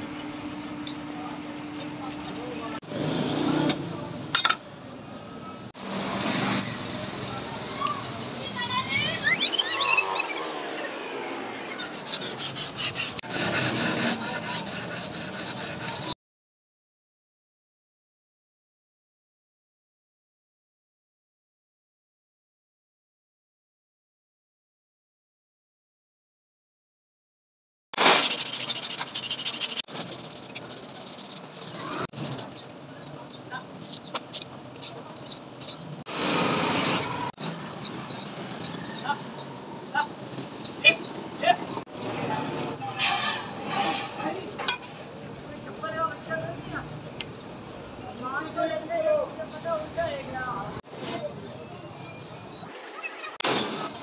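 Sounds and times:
knife blade scratching on sandpaper: 0:11.3 - 0:16.2, 0:28.0 - 0:32.8, 0:34.2 - 0:39.2, 0:42.8 - 0:44.4.

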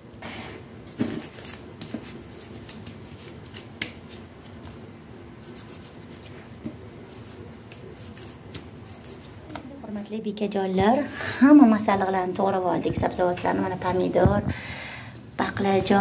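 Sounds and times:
knife slicing tomatoes: 0:05.4 - 0:09.5.

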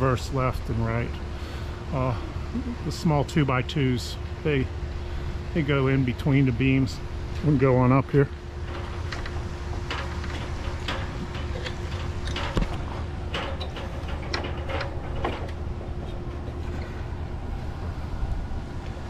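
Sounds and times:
faint hum: 0:00.0 - 0:19.0
ladder clicking and knocking: 0:08.6 - 0:17.0.

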